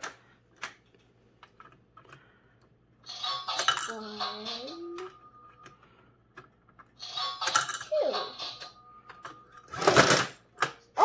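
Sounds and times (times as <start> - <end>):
plastic coins clattering in slot: 3.4 - 4.0, 7.4 - 8.0, 9.2 - 10.4.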